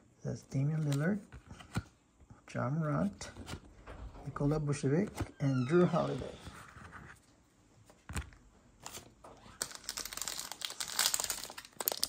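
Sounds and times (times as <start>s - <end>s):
foil wrapper crinkling and tearing: 9.5s - 12.0s.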